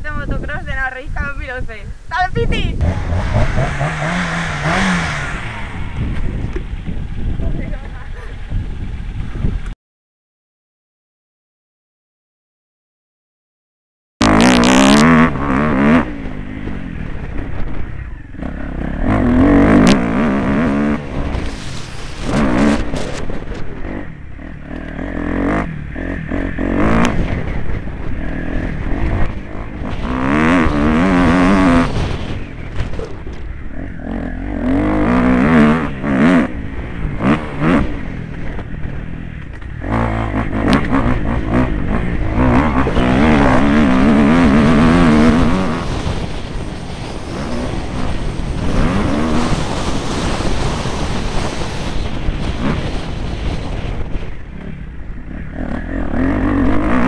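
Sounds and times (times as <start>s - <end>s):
motorbike engine revving: 2.4s - 9.7s, 14.2s - 57.0s.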